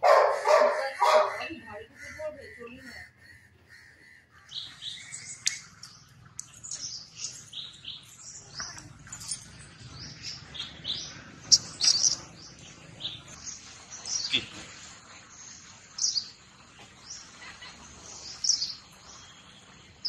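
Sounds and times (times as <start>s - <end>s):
shrill chirping calls: 4.4s - 13.4s.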